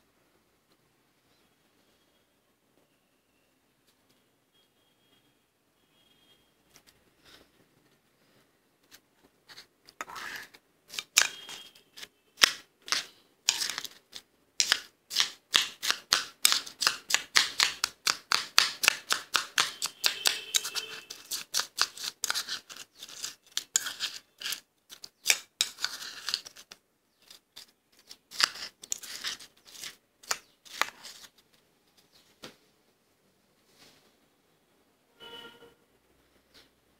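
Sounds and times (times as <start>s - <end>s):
freezer frost crunching: 10.3s - 31.4s.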